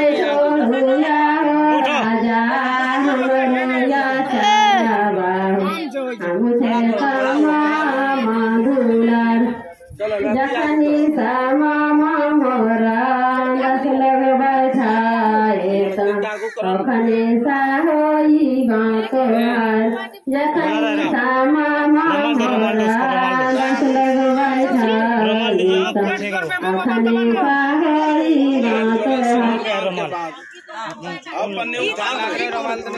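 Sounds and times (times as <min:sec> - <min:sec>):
women singing without instruments: 0:10.3 - 0:16.0, 0:16.7 - 0:25.6.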